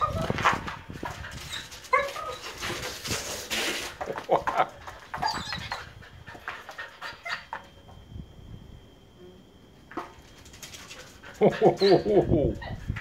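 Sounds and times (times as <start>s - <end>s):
dog panting and whimpering: 5.2s - 7.8s, 10.8s - 13.0s.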